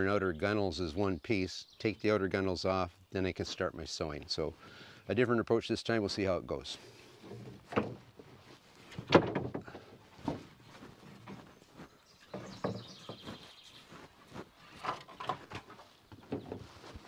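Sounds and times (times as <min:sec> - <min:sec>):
wooden strips knocking together: 0:08.9 - 0:10.4, 0:14.8 - 0:16.6.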